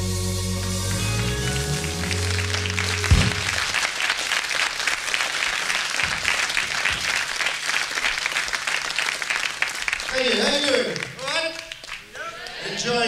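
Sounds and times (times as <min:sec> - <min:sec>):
band chord: 0:00.0 - 0:03.8
audience applauding: 0:01.2 - 0:13.0.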